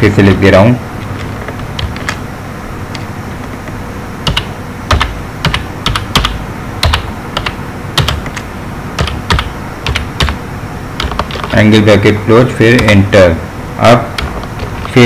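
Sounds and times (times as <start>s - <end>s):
keyboard keystrokes clicking: 4.2s - 10.4s.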